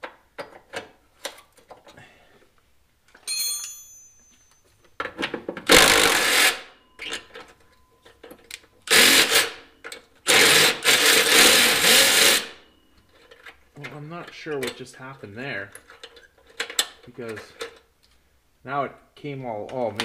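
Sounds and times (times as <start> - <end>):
short metallic ring: 3.2 - 4.8
impact wrench hammering: 5.7 - 6.7.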